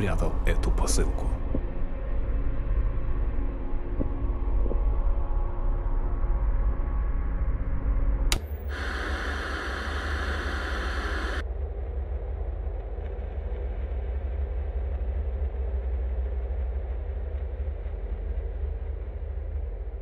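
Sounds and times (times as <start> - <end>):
low rumbling drone: 0.0 - 20.0
sharp click: 8.3 - 8.8
static hiss: 8.4 - 11.4.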